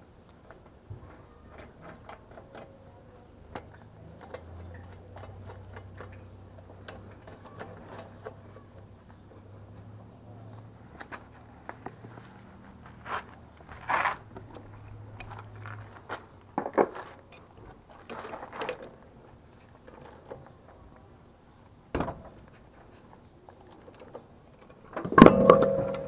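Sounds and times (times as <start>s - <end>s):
low steady hum: 24.5s - 26.0s.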